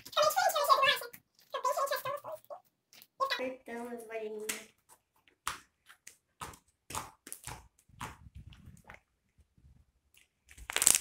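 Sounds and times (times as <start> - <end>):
slime squelching: 4.3 - 11.0.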